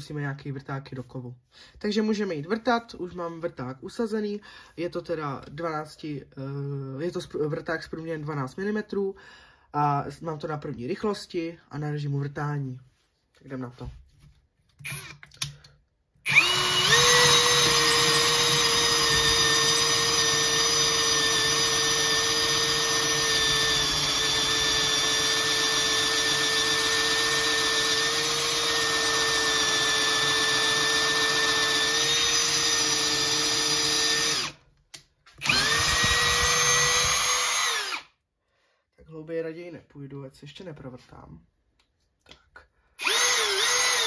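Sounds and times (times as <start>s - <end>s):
cordless drill boring into wood: 14.8s - 15.6s, 16.2s - 34.6s, 35.4s - 38.2s, 43.0s - 44.0s.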